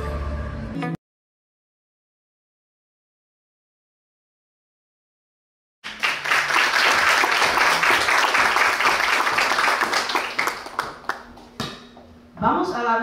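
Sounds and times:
audience applauding: 5.8 - 11.5.

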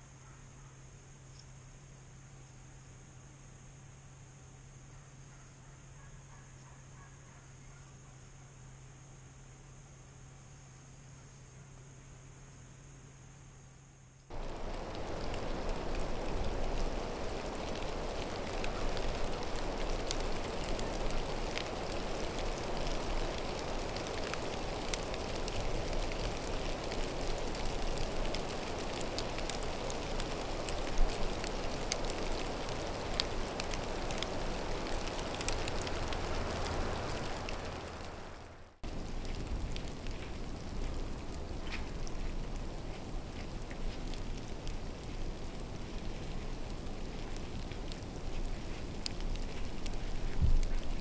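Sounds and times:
rain pattering: 14.3 - 51.0.

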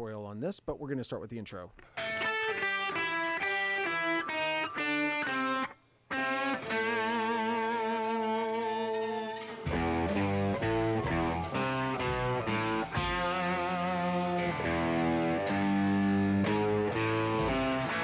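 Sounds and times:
electric guitar playing: 1.8 - 18.0.

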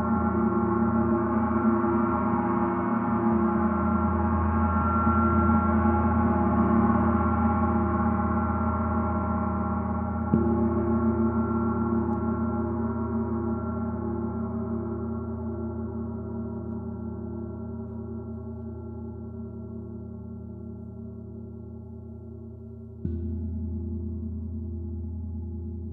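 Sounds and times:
mallet striking gong: 10.2 - 13.2, 23.0 - 24.8.

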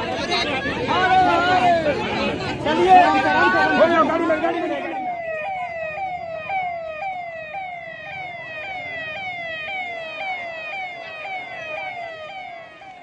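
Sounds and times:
electronic siren falling sweep: 4.8 - 13.0.

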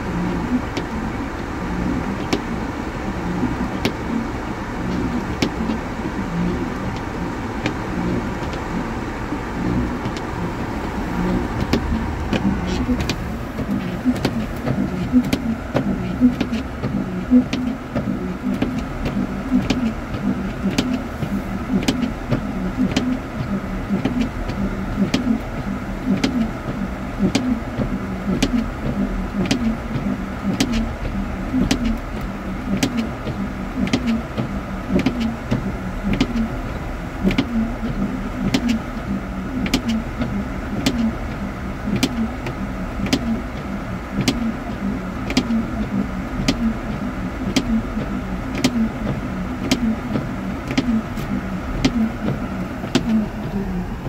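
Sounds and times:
car engine and road hum: 0.0 - 54.0
windshield wipers sweeping: 0.0 - 54.0.

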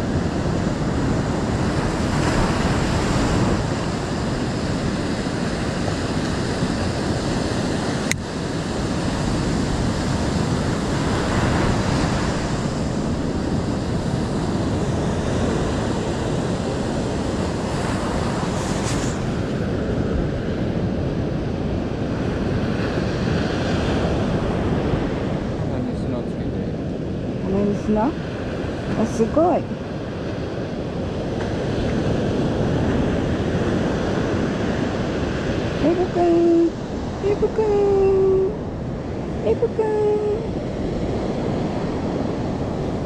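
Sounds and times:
surf breaking on beach: 0.0 - 26.0
wind on microphone: 0.0 - 43.0.

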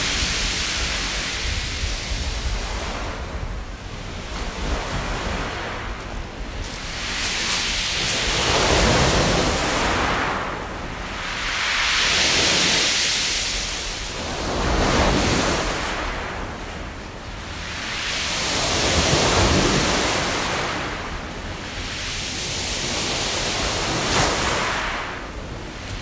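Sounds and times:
sea waves breaking on pebbles: 6.5 - 13.5.

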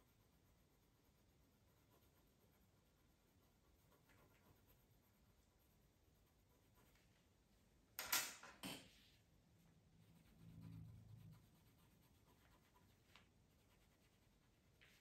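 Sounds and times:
pencil strokes on paper: 0.0 - 7.3, 9.1 - 15.0
low hum: 9.4 - 12.2.

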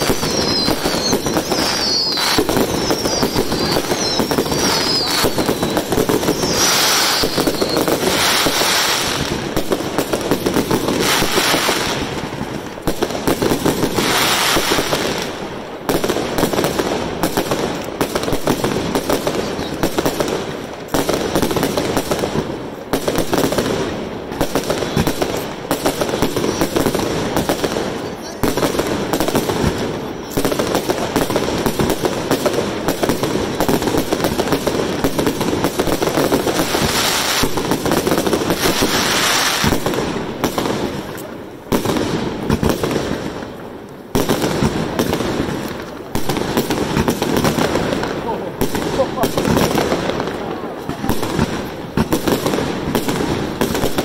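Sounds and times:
warbling firework whistles: 0.0 - 9.2
fireworks crackling and popping: 0.0 - 54.0.

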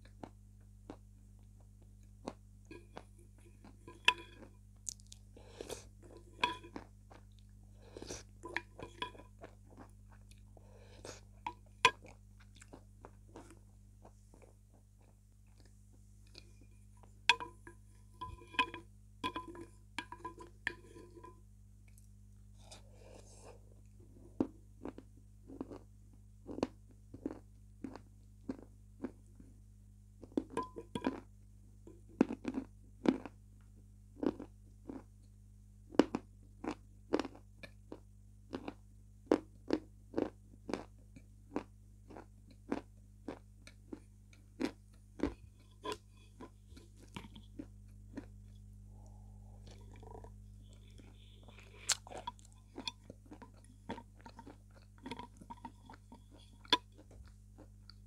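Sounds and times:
wet mouth eating sounds: 2.3 - 13.6, 35.9 - 58.0.

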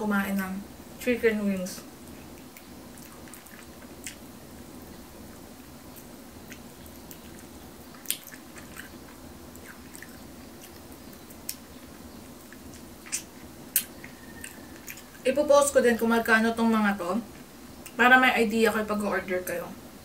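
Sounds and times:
steady low hum: 0.0 - 20.0
person chewing chicken wings: 2.1 - 4.3, 5.3 - 15.2
wet mouth clicks and smacks: 6.4 - 9.0.

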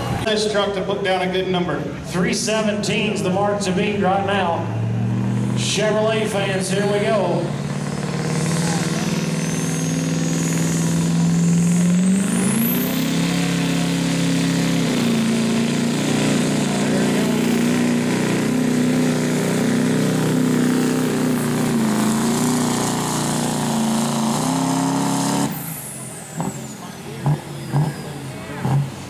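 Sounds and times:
diesel engine at full throttle: 0.0 - 29.0
high turbo whistle: 8.4 - 13.0.

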